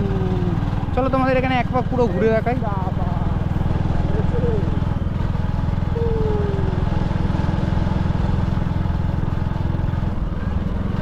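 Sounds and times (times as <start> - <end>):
motorcycle engine running: 0.0 - 11.0
road and wind noise: 0.0 - 11.0.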